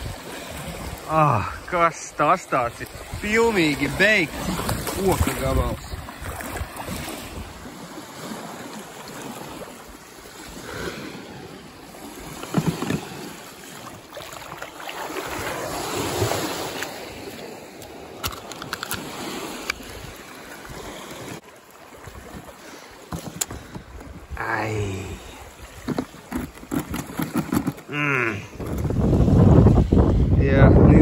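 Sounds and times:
small waves washing on sand: 0:00.0 - 0:28.5
wind on microphone: 0:25.6 - 0:31.0.

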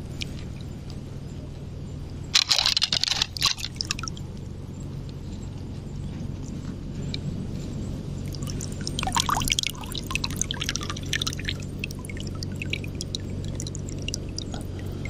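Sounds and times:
steady low hum: 0:00.0 - 0:15.0
crackling clicks: 0:02.3 - 0:04.5
splashy clicks: 0:02.4 - 0:04.2, 0:08.3 - 0:15.0
water sloshing and splashing: 0:02.4 - 0:04.5, 0:08.2 - 0:15.0.

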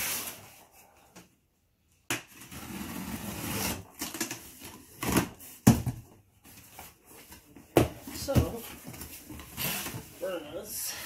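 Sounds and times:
cardboard flaps rustling: 0:03.9 - 0:10.4.

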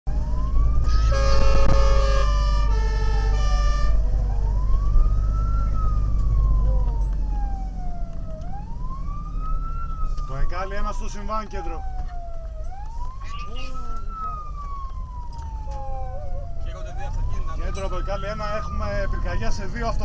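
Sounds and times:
engine and road rumble: 0:00.0 - 0:20.0
siren wailing: 0:00.1 - 0:20.0
horn blasts: 0:00.9 - 0:04.0.

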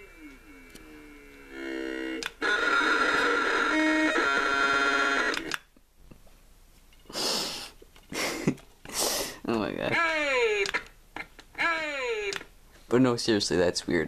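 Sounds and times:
short hissing bursts: 0:07.1 - 0:07.8, 0:08.9 - 0:09.4.

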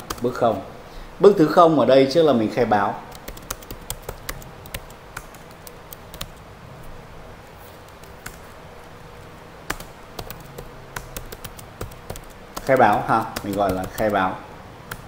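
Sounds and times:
keyboard typing clicks: 0:00.0 - 0:00.4, 0:03.1 - 0:06.4, 0:07.8 - 0:09.0, 0:09.7 - 0:14.2.

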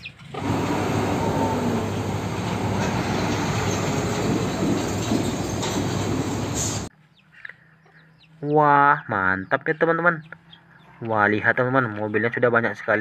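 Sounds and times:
tanker truck rumble and road noise: 0:00.1 - 0:06.9.

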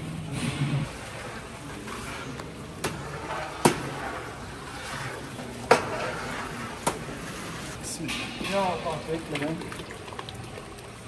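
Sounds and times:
kitchen background noise: 0:00.0 - 0:11.0
metal ladles clanking on steel pot: 0:07.8 - 0:10.2.

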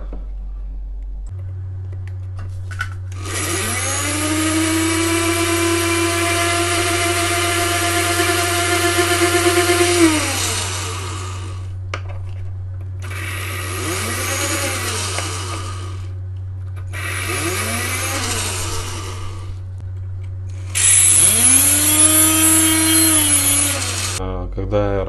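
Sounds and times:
micromotor humming: 0:01.3 - 0:24.2.

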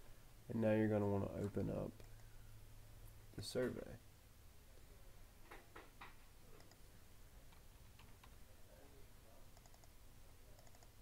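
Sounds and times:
faint computer mouse clicks: 0:06.6 - 0:06.8, 0:10.6 - 0:11.0.

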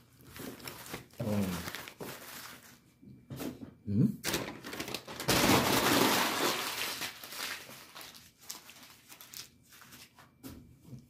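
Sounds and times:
food wrapper crumpling: 0:00.2 - 0:02.8, 0:04.2 - 0:10.2.

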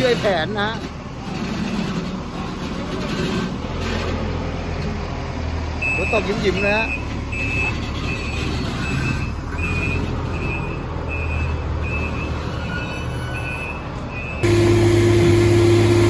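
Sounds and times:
diesel engine rumble: 0:00.0 - 0:16.0
reversing alarm beeping: 0:05.8 - 0:16.0.

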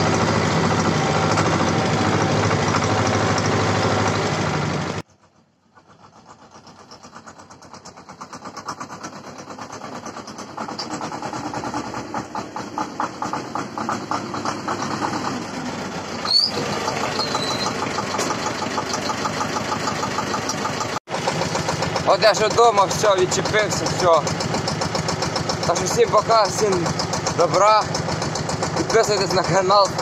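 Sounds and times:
tractor diesel engine chugging: 0:00.0 - 0:30.0
brief high squeak: 0:16.2 - 0:18.3.

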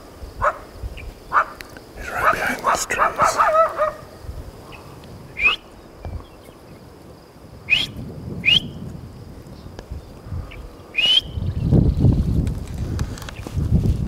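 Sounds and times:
sharp rising whistles: 0:07.7 - 0:08.8, 0:11.0 - 0:11.5.

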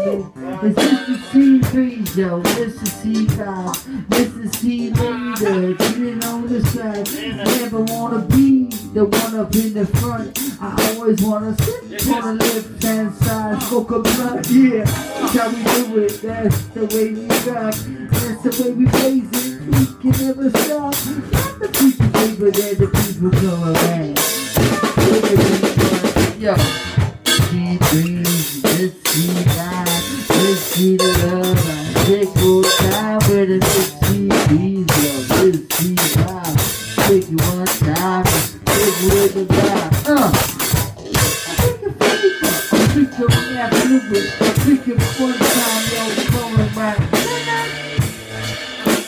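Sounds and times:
live band playing: 0:00.0 - 0:49.0.

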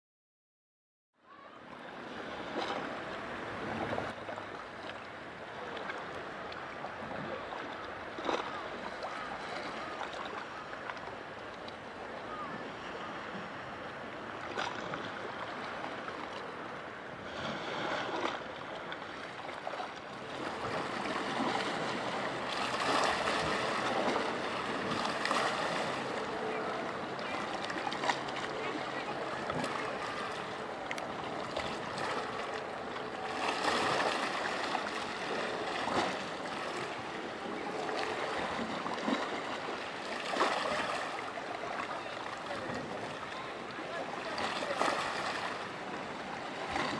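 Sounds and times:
small waves washing: 0:01.3 - 0:46.9.

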